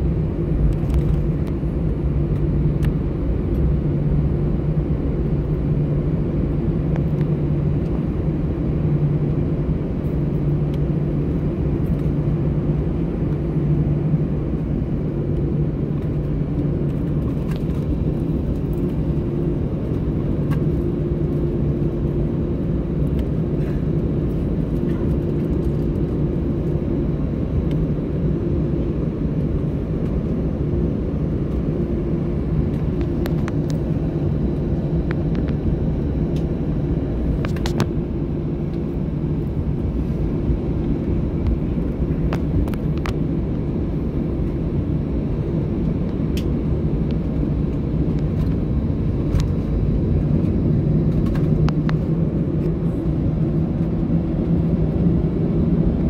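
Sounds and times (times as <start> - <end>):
jet engines humming in cabin: 0.0 - 56.0.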